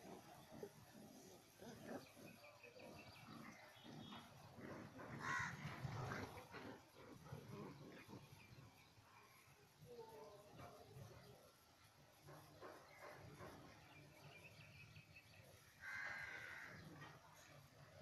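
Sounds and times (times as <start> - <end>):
puppies play-fighting: 0.0 - 8.7
faint growls: 0.0 - 14.6, 15.8 - 18.0.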